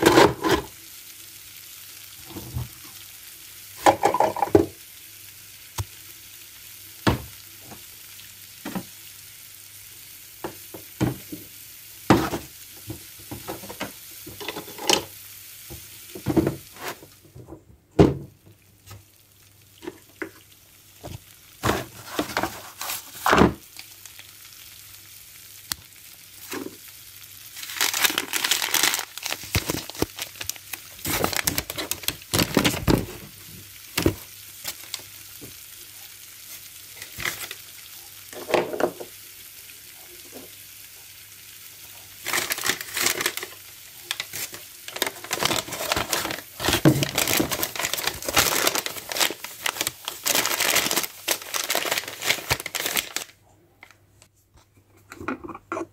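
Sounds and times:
paper bag rustling: 21.6 - 23.5, 27.6 - 33.2, 42.2 - 53.4.

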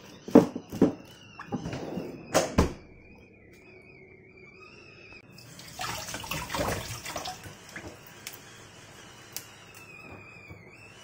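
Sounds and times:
tap water splashing into sink: 5.6 - 8.0.

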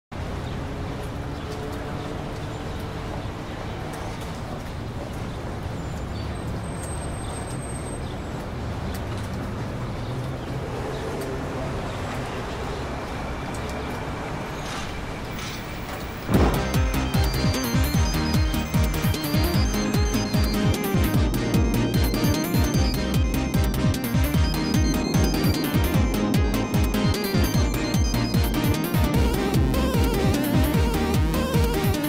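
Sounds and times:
low traffic hum: 0.1 - 32.0
loud music: 16.3 - 32.0.

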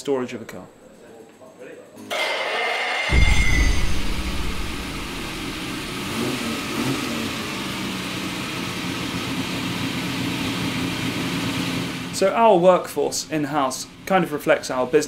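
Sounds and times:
car engine revving: 3.1 - 12.2.

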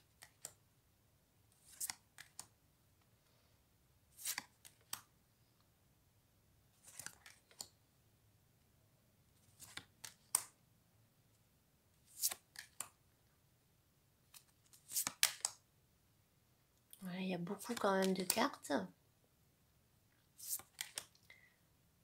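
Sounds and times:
cards swishing and snapping: 0.1 - 0.6, 1.6 - 2.6, 4.1 - 5.1, 6.8 - 7.7, 9.4 - 10.6, 12.1 - 13.0, 14.3 - 15.6, 20.4 - 21.2.

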